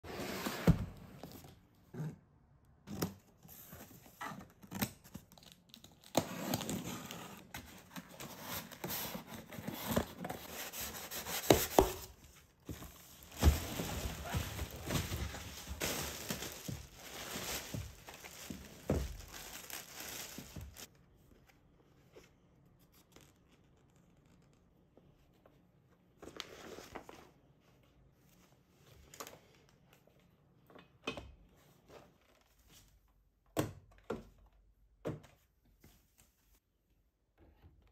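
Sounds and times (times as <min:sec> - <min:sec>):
plastic bag crinkling: 0:13.2 - 0:20.9.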